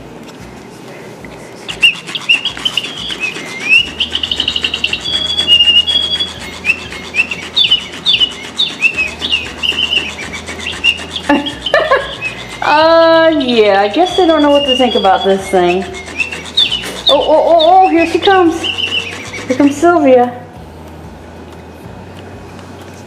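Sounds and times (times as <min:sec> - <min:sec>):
toy bird chirps: 0:01.7 - 0:19.8
toy motor ticking and whirring: 0:01.7 - 0:20.2.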